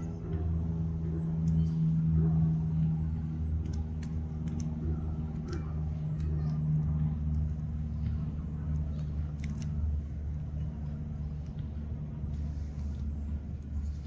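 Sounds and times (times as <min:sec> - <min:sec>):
engine idling: 0:00.0 - 0:14.0
faint clicks: 0:03.5 - 0:10.0.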